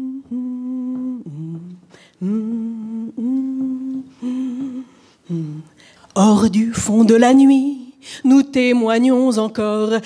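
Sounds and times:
woman humming a slow tune: 0.0 - 5.8.

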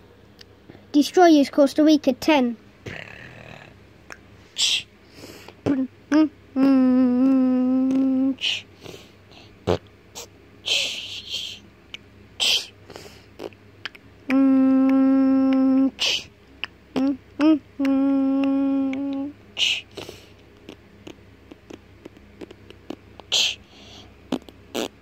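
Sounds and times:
breathy hisses: 4.4 - 5.6, 8.3 - 9.6, 12.4 - 13.4, 19.6 - 20.4, 23.3 - 24.2
person humming held notes: 5.6 - 8.8, 10.2 - 11.6, 14.2 - 16.3, 16.9 - 23.7.

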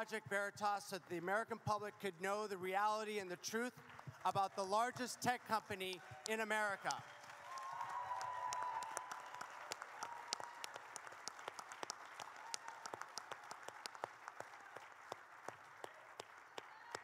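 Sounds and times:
audience applauding: 3.7 - 17.0.

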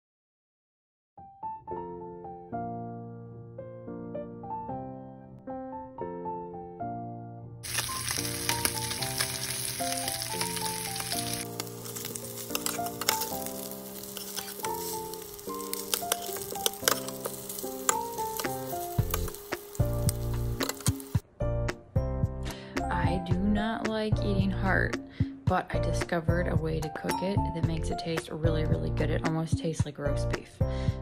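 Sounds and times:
gentle piano music: 1.2 - 29.3
meat sizzling in a frying pan: 7.6 - 21.2
metal spatula scraping a pan: 10.9 - 19.4.

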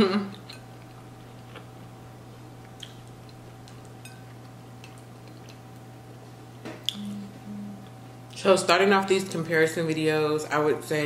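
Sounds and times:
steady low hum: 0.0 - 11.0
quiet chewing clicks: 2.6 - 5.9.

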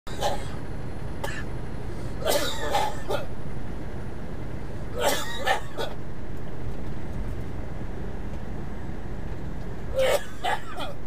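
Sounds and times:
person coughing hard: 0.1 - 0.6, 1.2 - 1.5, 2.2 - 3.3, 5.0 - 6.0, 9.9 - 11.0
truck cab drone: 0.1 - 11.0.

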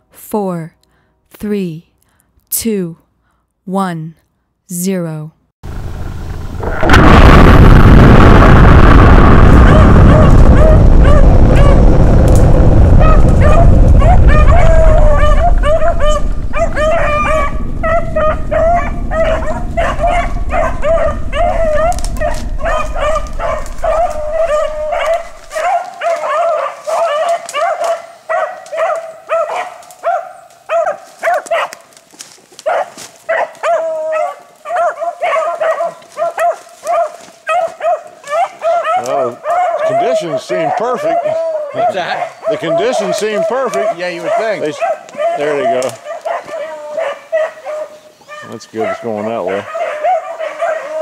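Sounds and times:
heavy low rumble: 5.6 - 25.6
hounds yelping: 13.0 - 31.9, 32.6 - 51.0.

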